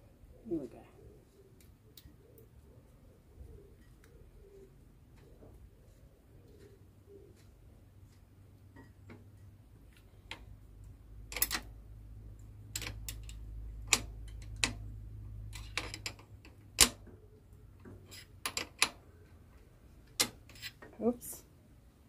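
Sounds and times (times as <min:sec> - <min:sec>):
metal clicks of pedal threading: 0:11.3 - 0:11.7, 0:12.7 - 0:14.9, 0:15.5 - 0:17.1.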